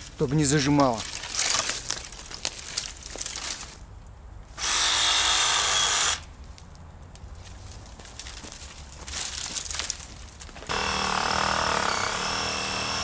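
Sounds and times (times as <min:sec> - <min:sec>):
reciprocating saw running: 0:10.7 - 0:13.0.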